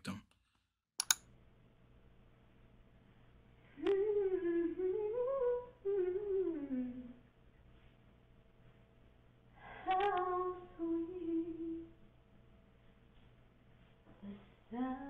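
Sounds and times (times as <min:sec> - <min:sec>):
low room hum: 0:01.1 - 0:15.0
woman humming: 0:03.8 - 0:07.2.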